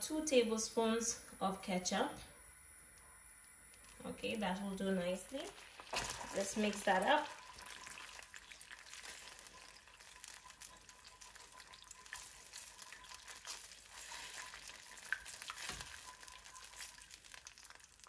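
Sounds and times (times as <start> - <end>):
glaze sizzling in a wok: 3.9 - 18.0
spatula stirring in wok: 5.4 - 18.0.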